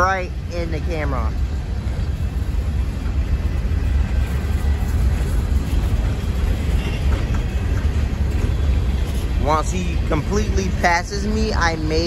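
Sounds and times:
freight train wheels rumbling on rail: 0.0 - 12.0.

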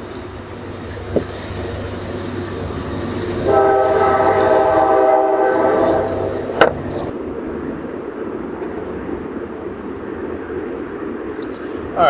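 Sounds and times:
low steady rumble: 0.0 - 12.0
horn chord: 3.4 - 6.4.

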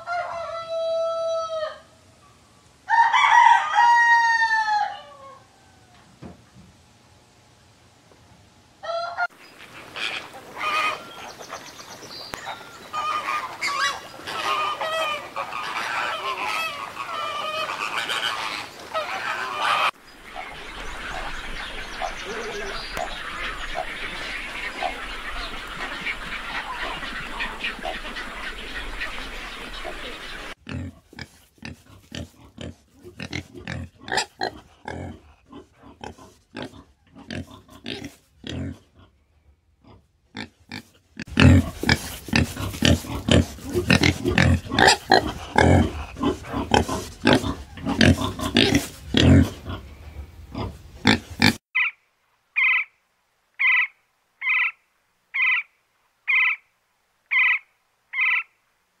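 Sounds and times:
outdoor hiss: 5.6 - 33.2, 40.9 - 59.0
warthog grunting and snorting: 30.6 - 39.0, 40.4 - 49.9.

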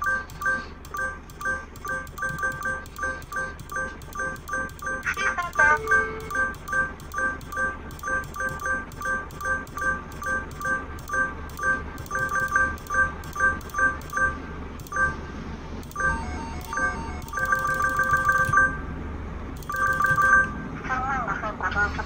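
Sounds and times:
short two-tone electronic beeps: 0.0 - 15.2, 15.9 - 18.8
lower-pitched electronic tones: 15.9 - 18.8.

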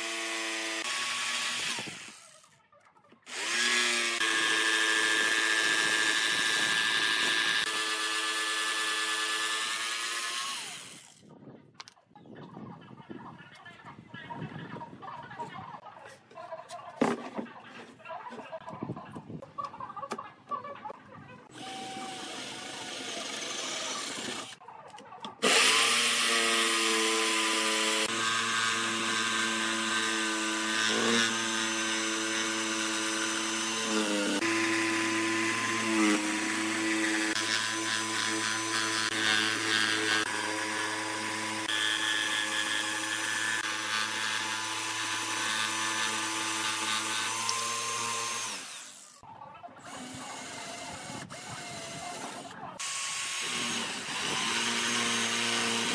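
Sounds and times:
electric jigsaw cutting wood: 0.0 - 2.5, 3.2 - 11.2, 21.5 - 24.6, 25.4 - 49.2, 49.9 - 55.9
cordless drill boring wood: 0.0 - 2.6, 3.2 - 11.2, 21.5 - 24.6, 25.4 - 49.2, 49.8 - 55.9.

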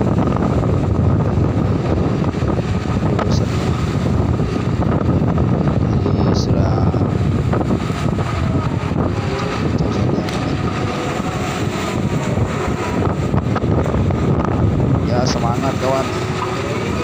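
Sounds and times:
diesel machinery running: 0.0 - 17.0
wind buffeting microphone: 0.0 - 17.0.

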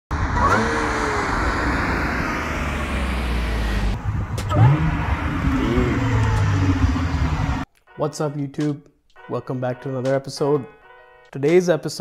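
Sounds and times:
car engine driving on highway: 0.1 - 7.7
car engine revving: 0.1 - 7.7.

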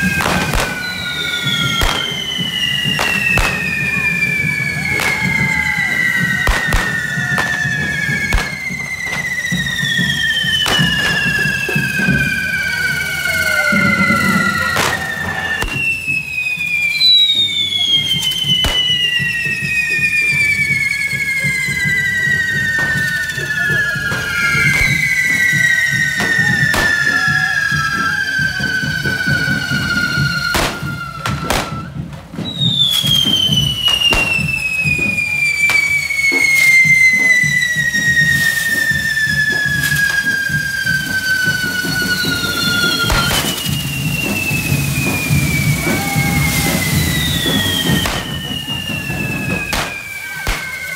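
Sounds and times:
sharp firework bangs: 0.0 - 12.8, 13.5 - 16.3, 18.0 - 19.6, 23.7 - 27.6, 28.6 - 50.9
whistling fireworks: 0.0 - 50.9.

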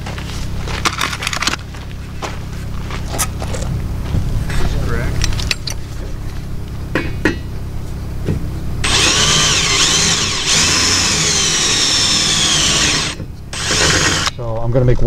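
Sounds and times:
cordless drill boring into metal: 8.8 - 14.3.

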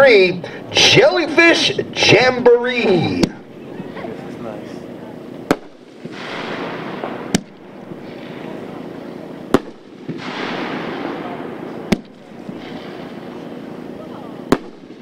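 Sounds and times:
firework bangs: 5.4 - 15.0
firework hissing: 5.5 - 15.0.

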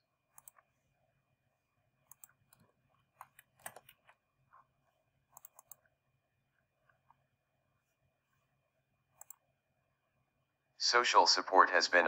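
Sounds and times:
faint steady hum: 0.0 - 12.0
computer clicks: 0.3 - 0.6, 2.1 - 4.2, 5.4 - 5.9, 9.2 - 9.4.

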